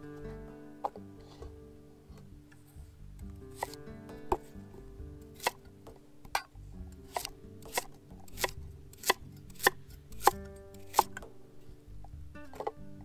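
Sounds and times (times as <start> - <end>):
soft background music: 0.0 - 13.0
knife chopping on cutting board: 3.5 - 4.5, 5.4 - 5.6, 7.1 - 11.3.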